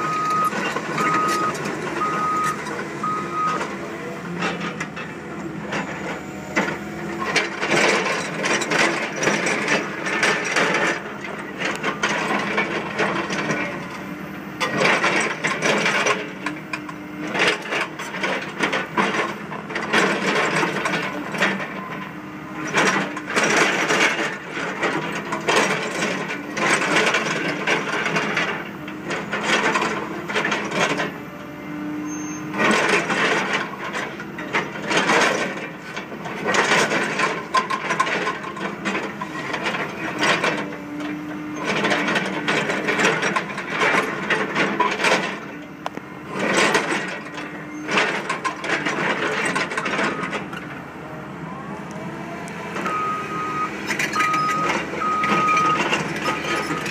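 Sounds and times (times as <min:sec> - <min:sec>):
excavator diesel engine under load: 0:00.0 - 0:56.9.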